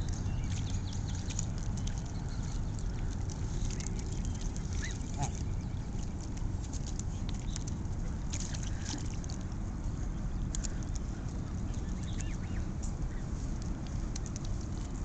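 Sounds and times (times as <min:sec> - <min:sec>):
geese splashing and clicking: 0:00.0 - 0:15.0
steady low rumble: 0:00.0 - 0:15.0.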